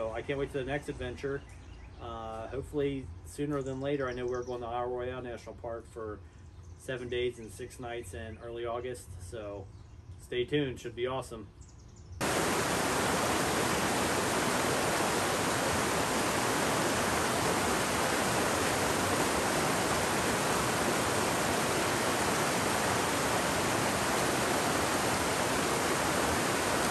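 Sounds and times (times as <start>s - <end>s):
rushing falling water: 12.2s - 26.9s.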